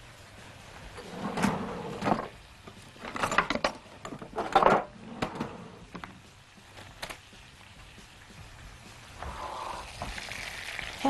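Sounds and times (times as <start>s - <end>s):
food sizzling in a grill pan: 6.3s - 11.0s.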